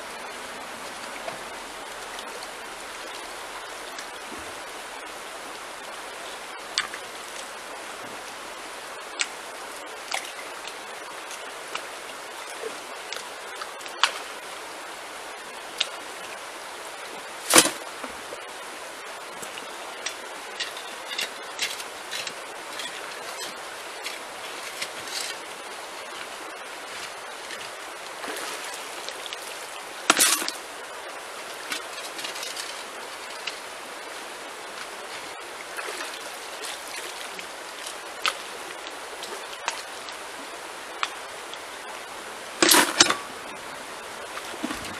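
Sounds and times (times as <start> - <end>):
stream running over gravel: 0.0 - 44.9
water splashing: 0.0 - 44.9
shovel scraping and striking stones: 17.5 - 17.8, 20.6 - 25.4, 30.1 - 30.6.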